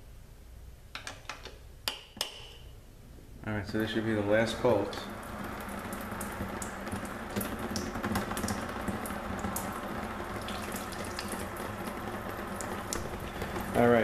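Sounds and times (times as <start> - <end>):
fluid trickling and dripping: 4.9 - 13.8.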